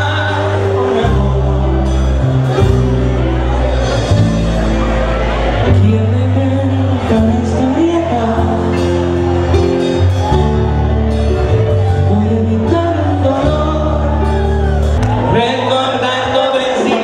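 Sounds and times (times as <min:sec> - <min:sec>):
man singing into a microphone: 0:00.0 - 0:02.8, 0:05.6 - 0:11.1, 0:11.8 - 0:17.0.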